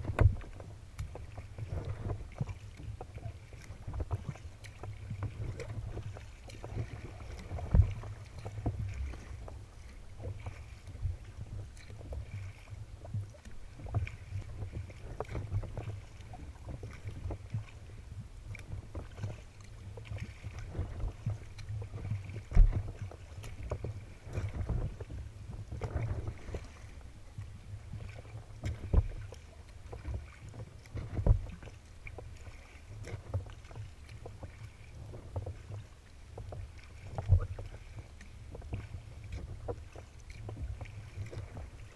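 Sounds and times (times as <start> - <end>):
paddle blades splashing: 0.0 - 41.9
water lapping against hull: 0.0 - 41.9
wind rumbling on microphone: 0.0 - 41.9.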